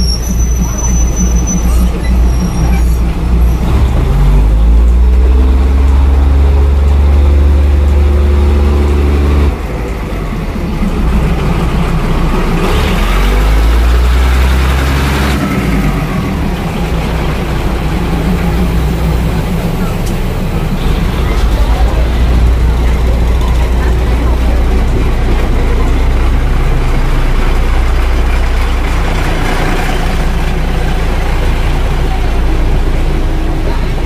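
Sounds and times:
diesel train engine: 0.0 - 34.0
second engine running: 0.0 - 34.0.

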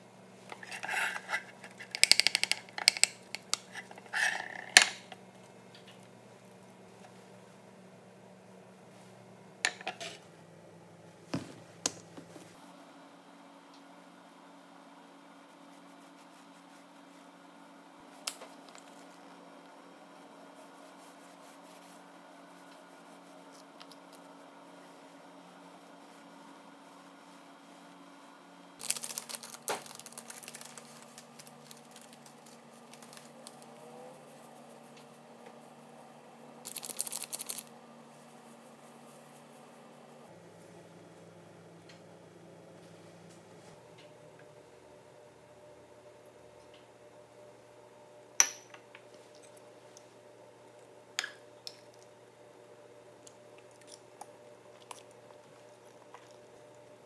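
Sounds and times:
fork scraping ceramic plate: 0.5 - 1.8
plastic bag crinkling: 28.8 - 33.7, 36.7 - 37.7
glass clinking on stone countertop: 48.4 - 48.9.

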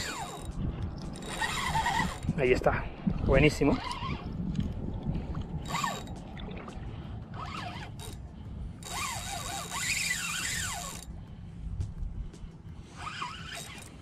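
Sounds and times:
fishing reel whirring: 0.0 - 2.6, 3.4 - 4.4, 5.6 - 6.2, 7.2 - 11.2, 12.8 - 14.0
wind rumble on microphone: 0.0 - 14.0.

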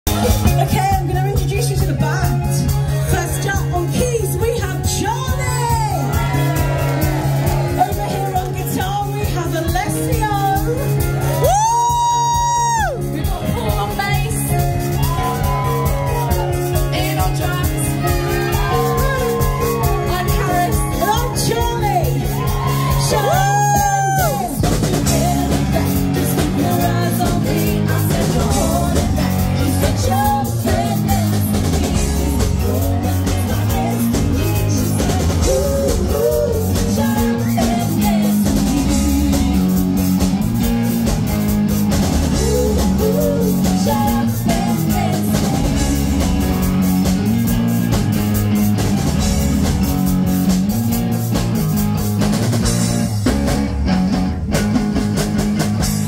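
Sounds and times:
bass guitar: 0.0 - 56.0
drum kit: 0.0 - 56.0
keyboards: 0.0 - 56.0
electric guitar: 0.1 - 56.0
women singing: 22.9 - 39.6, 42.3 - 46.6.

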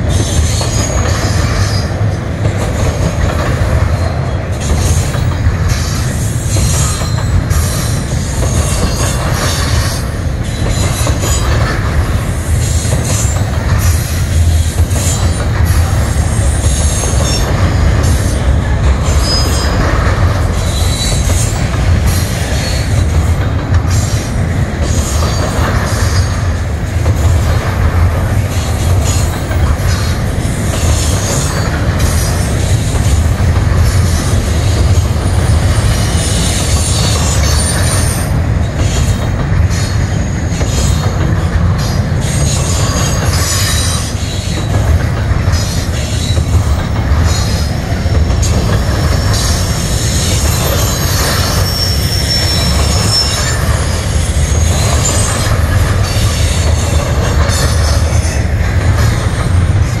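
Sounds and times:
train wheels rumbling on rail: 0.0 - 60.0
high-pitched wheel squeals: 19.0 - 23.0, 45.5 - 58.4.

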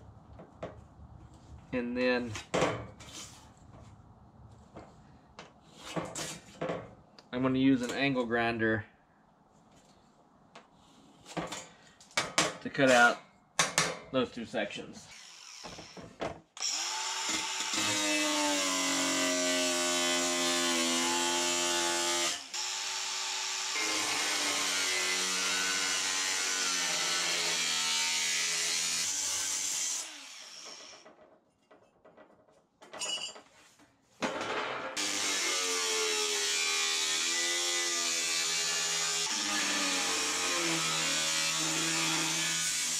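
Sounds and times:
angle grinder cutting sheet metal: 16.6 - 31.1, 34.9 - 42.9.

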